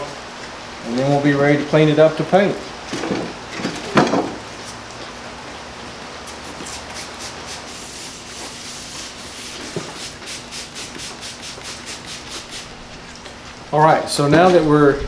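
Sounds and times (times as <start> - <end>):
wet sanding strokes: 6.3 - 12.8.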